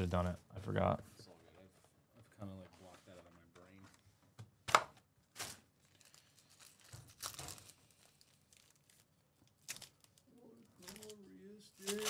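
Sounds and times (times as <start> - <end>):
foil pack crinkling and tearing: 5.3 - 12.0.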